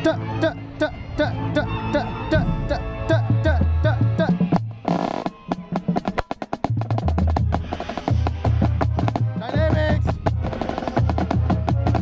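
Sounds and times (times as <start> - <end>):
deep bass line: 0.0 - 4.8
rapid snare drum strokes: 4.2 - 12.0.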